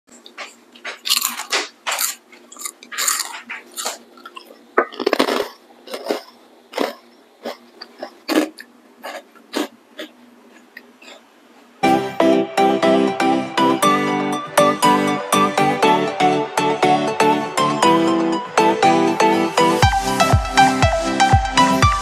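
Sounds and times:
crunching crispy snacks: 0.4 - 11.2.

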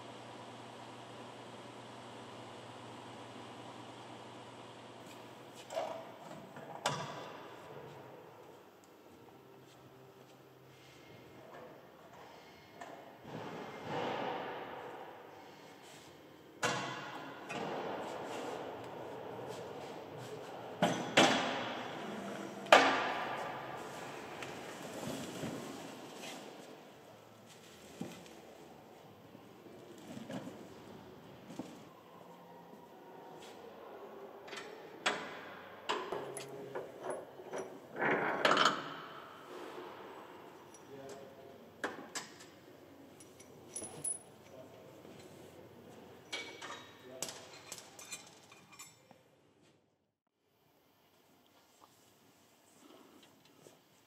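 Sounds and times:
wrench clinking on bolts: 46.3 - 49.2.

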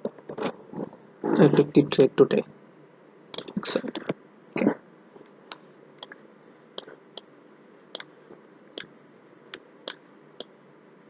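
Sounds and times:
computer mouse clicking: 3.4 - 3.6.

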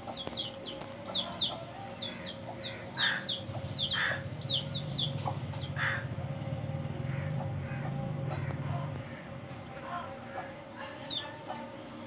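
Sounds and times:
baby chicks peeping: 0.0 - 6.0
hen clucking: 0.0 - 6.0
harsh low bird calls: 1.4 - 6.0.

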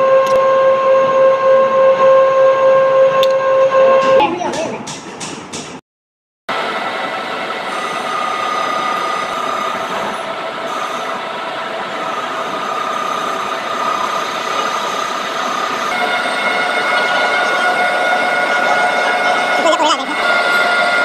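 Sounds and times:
metal lathe whining: 6.5 - 21.0.

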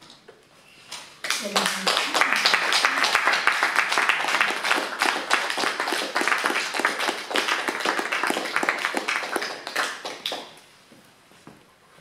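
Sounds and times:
audience applause: 1.2 - 10.6.

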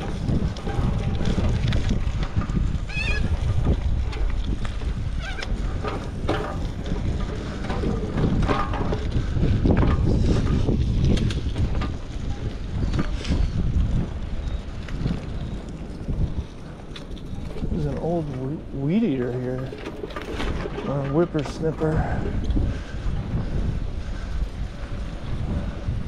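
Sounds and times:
bicycle rolling over gravel: 0.0 - 26.0
wind buffeting microphone: 0.0 - 26.0
wavering bird calls: 2.9 - 3.3.

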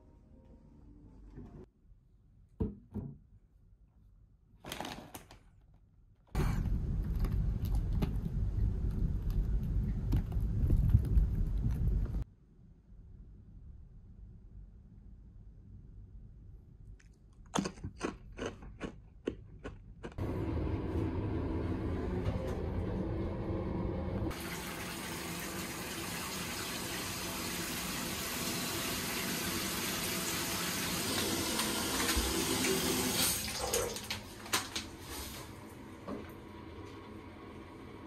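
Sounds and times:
water pouring into a bathtub: 24.3 - 35.8.

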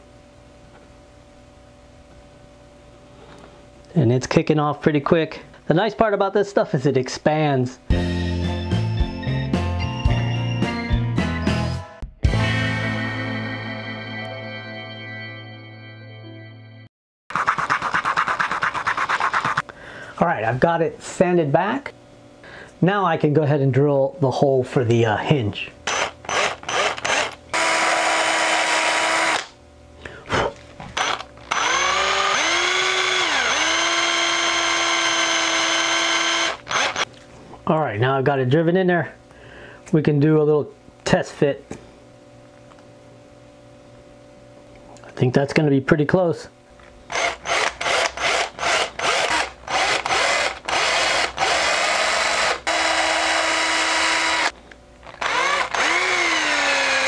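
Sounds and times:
cordless drill boring into wood: 25.9 - 29.5, 31.0 - 37.0, 47.1 - 57.0
drill click: 25.9 - 29.6, 31.0 - 37.1, 47.1 - 57.0.

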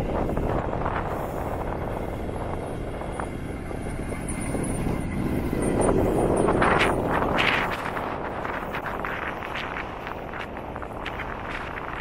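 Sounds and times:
vehicle driving on soft sand: 0.0 - 12.0.

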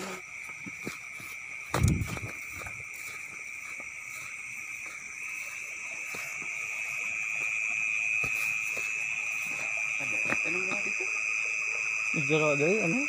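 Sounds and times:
insects trilling: 0.0 - 13.0
footsteps through wet grass: 0.2 - 10.6.

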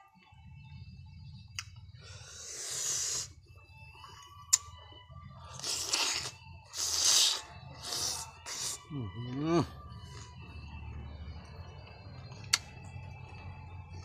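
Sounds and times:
hissing breaths through mouth: 2.1 - 3.4
person chewing: 5.5 - 8.8.

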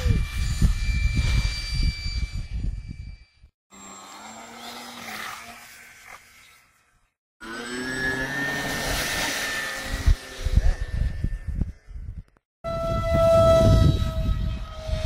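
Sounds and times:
model airplane motor whine: 0.0 - 12.1, 12.7 - 15.0
wind thumps on microphone: 10.0 - 15.0.

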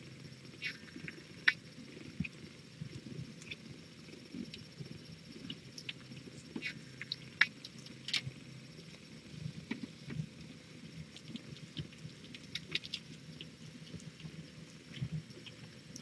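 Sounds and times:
kittens scratching and clicking: 11.1 - 16.0.

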